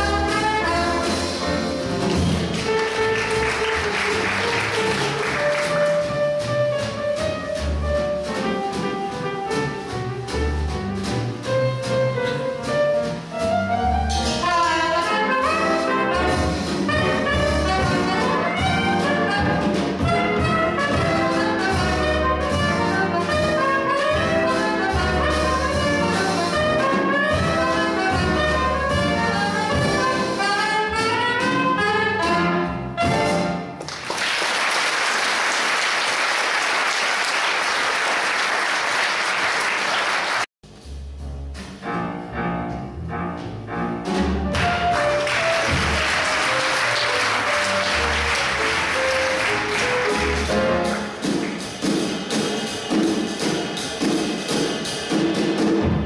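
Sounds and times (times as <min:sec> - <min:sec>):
double bass: 0:00.0 - 0:33.8, 0:40.6 - 0:56.0
drums: 0:00.0 - 0:56.0
piano: 0:00.0 - 0:56.0
audience applauding: 0:02.3 - 0:06.1, 0:33.8 - 0:40.5, 0:44.6 - 0:51.7
soprano saxophone: 0:14.4 - 0:16.2.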